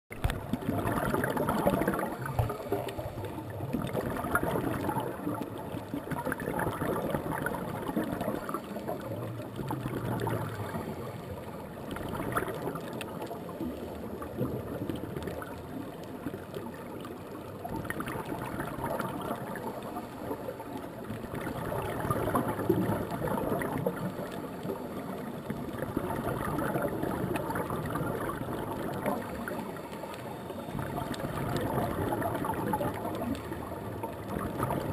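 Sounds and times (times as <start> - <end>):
regulator air bubbling: 0.1 - 13.6.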